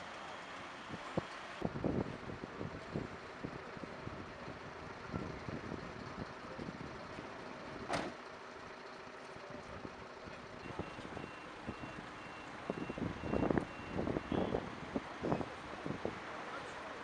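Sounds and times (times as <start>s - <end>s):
street traffic: 0.0s - 17.0s
reversing alarm beeping: 10.6s - 14.5s.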